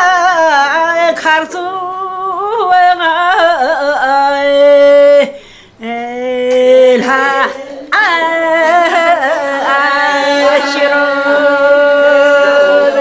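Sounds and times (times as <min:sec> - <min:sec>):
elderly woman singing: 0:00.0 - 0:13.0.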